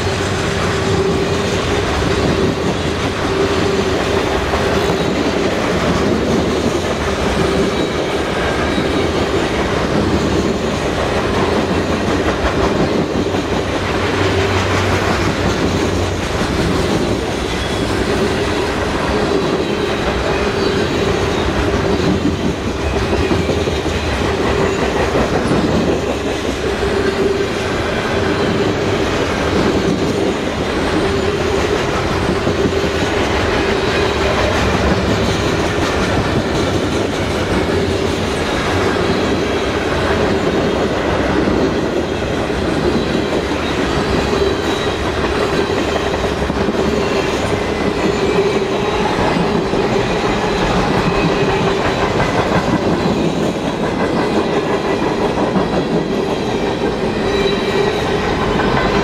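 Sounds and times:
train rumble: 0.0 - 59.0
train wheels clacking over joints: 0.0 - 59.0.

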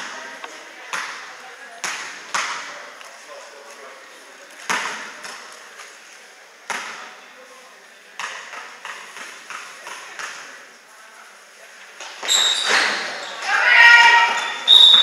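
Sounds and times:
ball smacks in echoing hall: 0.9 - 2.8, 4.6 - 5.5, 6.7 - 7.1, 8.2 - 10.5.

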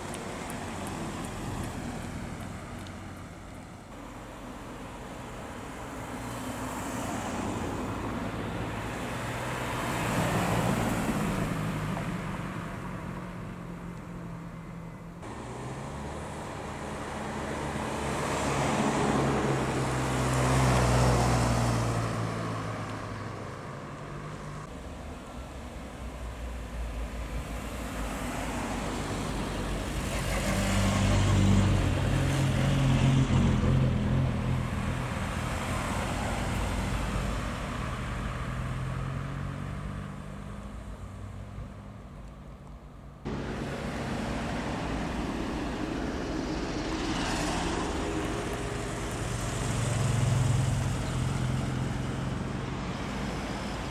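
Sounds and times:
cars driving slowly past: 0.0 - 53.9.

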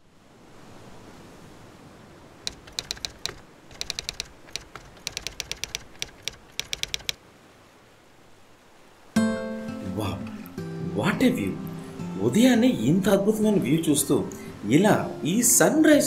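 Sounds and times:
faint steady hiss: 0.0 - 16.0
keyboard key clicks: 2.5 - 7.2.

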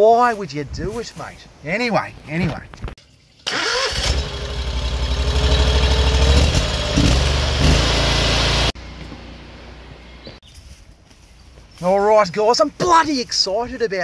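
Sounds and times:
petrol engine running: 3.5 - 9.2.

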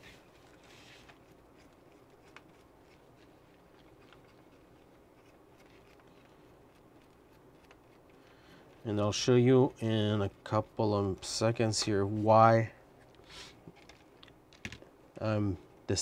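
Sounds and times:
hands rustling plastic parts: 0.0 - 8.9, 12.9 - 14.9.

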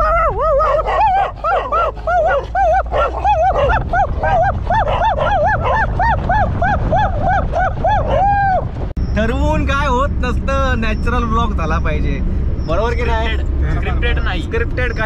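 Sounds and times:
dog barking rapidly: 0.0 - 8.2
car engine and tyres rumbling: 0.0 - 15.0.

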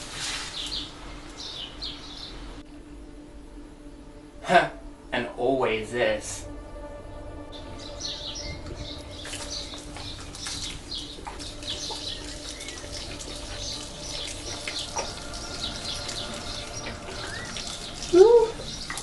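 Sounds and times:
birds chirping: 0.0 - 3.0, 3.8 - 19.0
milk splashing onto ground: 8.6 - 19.0.

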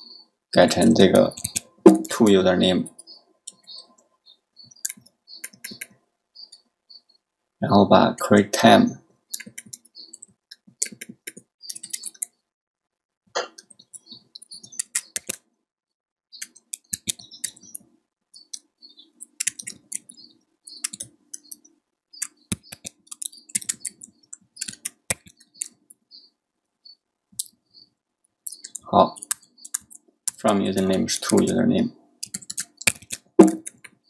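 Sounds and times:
computer keyboard key clicks: 14.8 - 15.4, 32.2 - 33.9.

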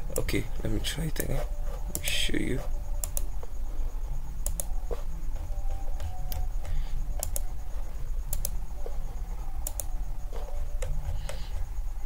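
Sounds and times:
steady low hum: 0.0 - 12.0
computer mouse clicking: 1.1 - 2.2, 3.0 - 3.3, 4.4 - 5.0, 5.8 - 7.6, 8.2 - 8.6, 9.6 - 10.0.

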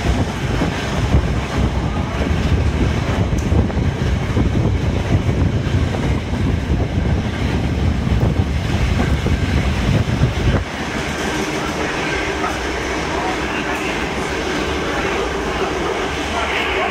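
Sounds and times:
wind rushing on microphone: 0.0 - 13.4
train wheels rolling on rails: 0.0 - 16.9.

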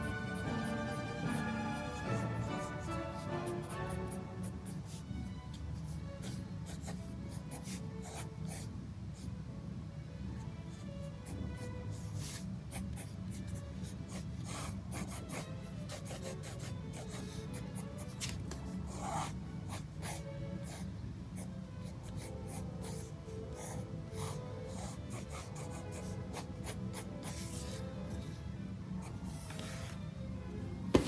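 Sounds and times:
pen scratching on paper: 0.0 - 5.0, 5.8 - 9.3, 12.0 - 20.8, 21.4 - 28.4
soft background music: 0.0 - 31.0.

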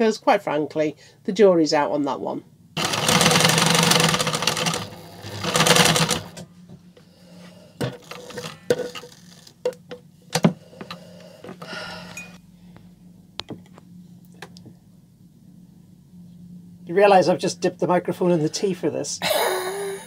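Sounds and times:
sewing machine mechanism clicks: 2.8 - 6.4
sewing machine stitching: 2.8 - 6.4.

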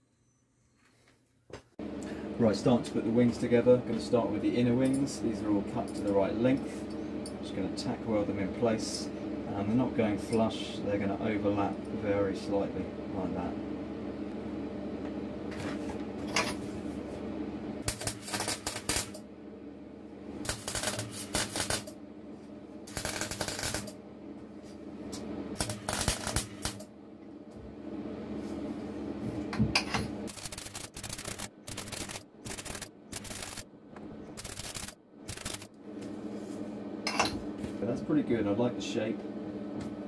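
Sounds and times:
low hum: 1.8 - 38.1
welding arc bursts: 17.8 - 19.2, 20.4 - 21.9, 22.9 - 24.0, 25.6 - 26.9, 30.3 - 33.6, 34.4 - 35.8.

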